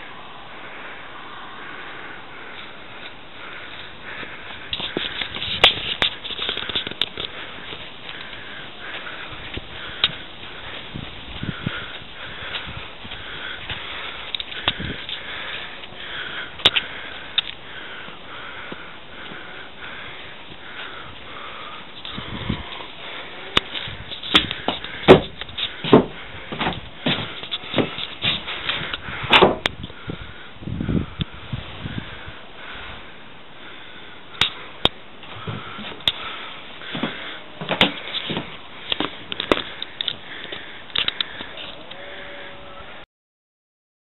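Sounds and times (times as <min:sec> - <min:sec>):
footsteps: 0:02.5 - 0:29.7, 0:34.9 - 0:41.9
camera handling clicks and bumps: 0:04.8 - 0:07.4, 0:37.6 - 0:41.5.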